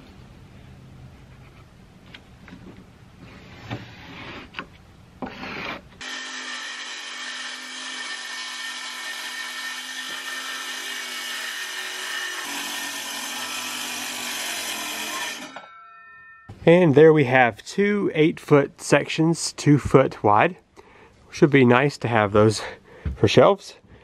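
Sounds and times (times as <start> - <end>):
pencil scratching on plywood: 5.2 - 5.8
circular saw cutting plywood: 5.2 - 15.7.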